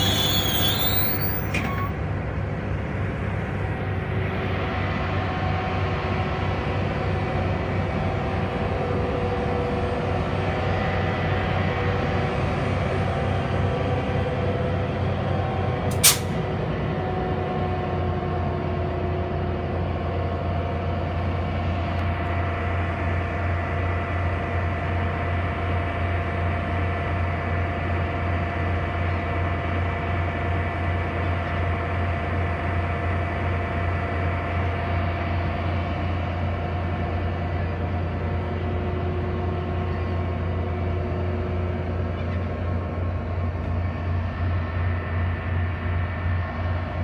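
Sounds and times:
locomotive diesel drone: 0:00.0 - 0:47.0.

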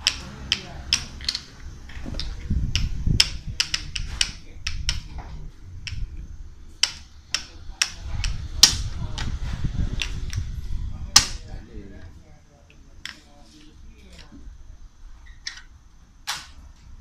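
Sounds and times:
bottle caps clicking on wooden board: 0:00.0 - 0:05.2, 0:05.8 - 0:06.1, 0:06.8 - 0:09.3, 0:15.4 - 0:15.7
low rumble: 0:00.0 - 0:13.0.

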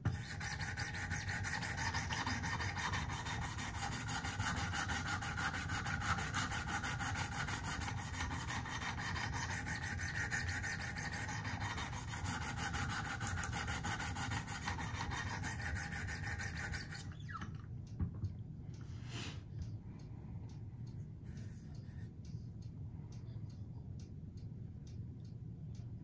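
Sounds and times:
sharpening stone scraping steel: 0:00.2 - 0:17.1.

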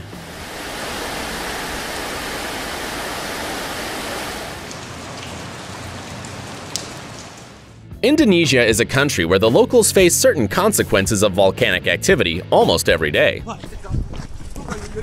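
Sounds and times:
rain falling: 0:00.0 - 0:07.8
faint drip ticks: 0:04.6 - 0:07.5.

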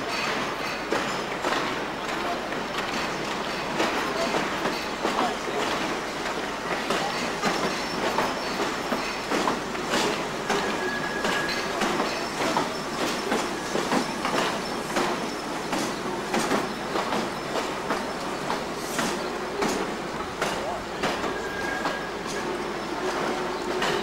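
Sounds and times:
train wheels clattering over rail joints: 0:00.0 - 0:24.0
train wheel squeal: 0:02.2 - 0:24.0.

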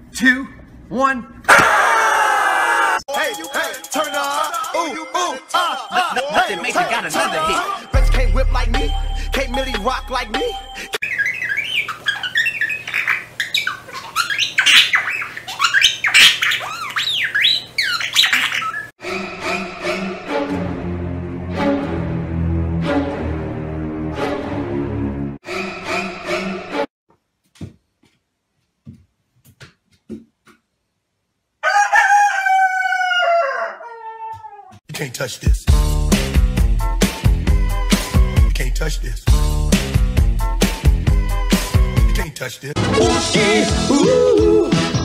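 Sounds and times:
rooster crowing: 0:01.5 - 0:03.0, 0:31.6 - 0:34.8
budgerigar warbling: 0:11.0 - 0:18.9.

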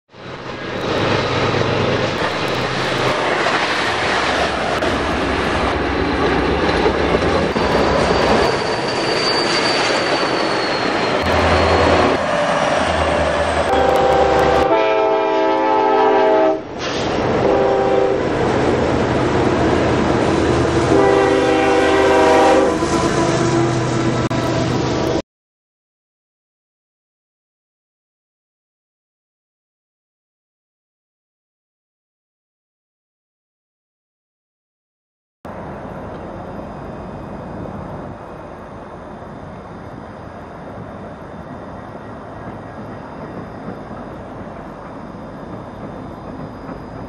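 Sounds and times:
locomotive engines droning: 0:00.2 - 0:25.2, 0:35.5 - 0:47.0
train wheels on rails: 0:00.2 - 0:25.2, 0:35.5 - 0:47.0
locomotive air horn: 0:10.8 - 0:12.2, 0:13.7 - 0:18.3, 0:20.8 - 0:24.8.

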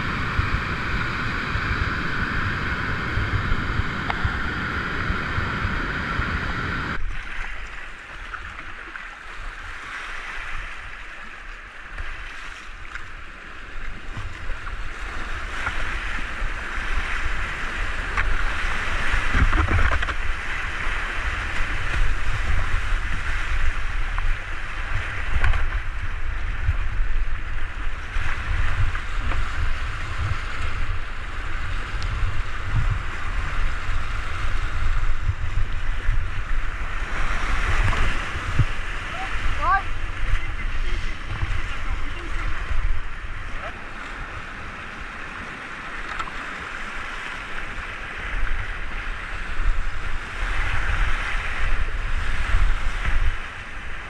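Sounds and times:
river rapid whitewater rushing: 0:00.0 - 0:07.0, 0:36.4 - 0:52.6
low rumble: 0:00.0 - 0:07.2
water splashing over boat: 0:00.0 - 0:54.0.

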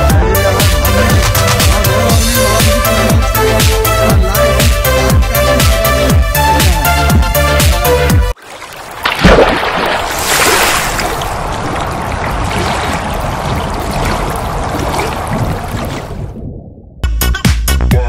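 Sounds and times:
running water rushing: 0:08.3 - 0:16.4
water splash: 0:08.4 - 0:16.5.

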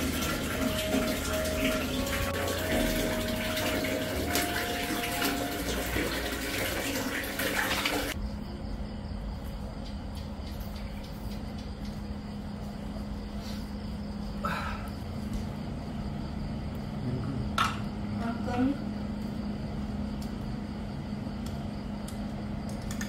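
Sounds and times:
hands washing in water: 0:00.0 - 0:08.2.

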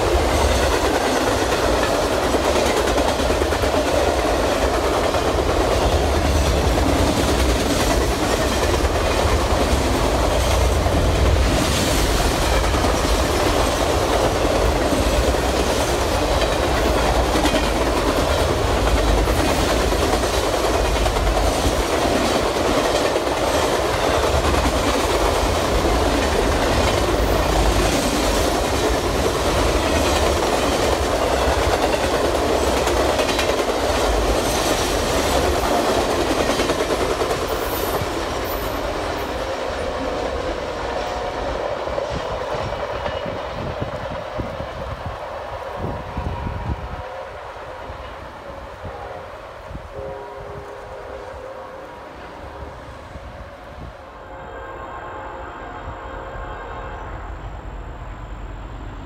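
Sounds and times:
train rolling past rumble: 0:00.0 - 0:59.0.

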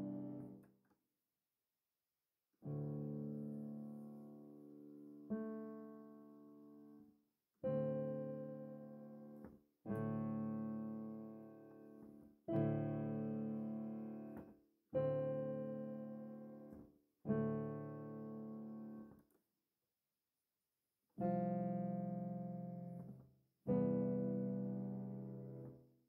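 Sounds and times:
slow piano chords: 0:00.0 - 0:00.6, 0:07.6 - 0:19.1, 0:21.2 - 0:25.8.

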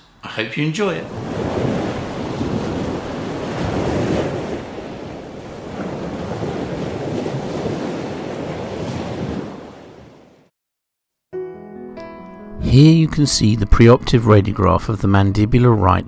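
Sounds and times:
sea waves washing on shore: 0:00.8 - 0:10.5.

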